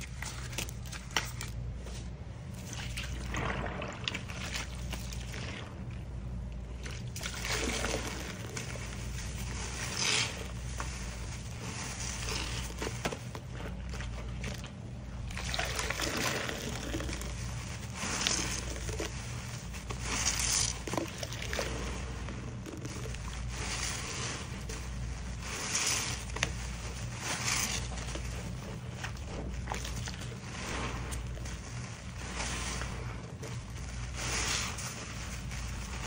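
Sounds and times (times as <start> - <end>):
sponge squelching in water: 0.0 - 36.0
steady low hum: 0.0 - 36.0
water splashing into basin: 2.6 - 6.0, 15.2 - 17.3.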